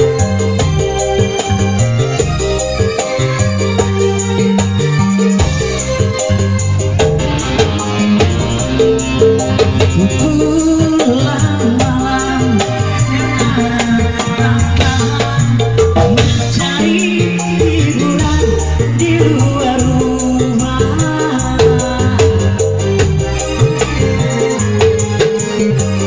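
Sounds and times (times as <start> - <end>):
electronic keyboard: 0.0 - 26.0
hand drums: 0.0 - 26.0
rattling shaker percussion: 0.0 - 26.0
man singing into a microphone: 9.9 - 23.4.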